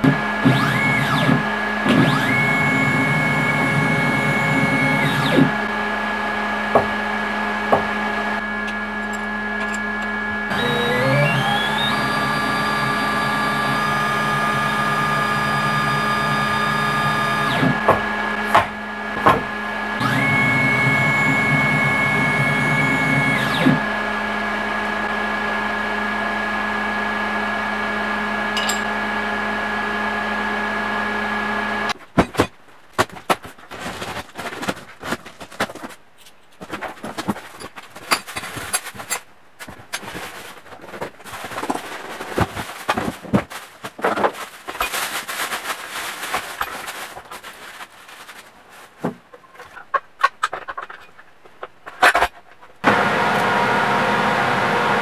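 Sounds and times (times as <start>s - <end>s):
milling machine motors whining: 0.0s - 25.0s
steady machine hum: 0.0s - 32.0s.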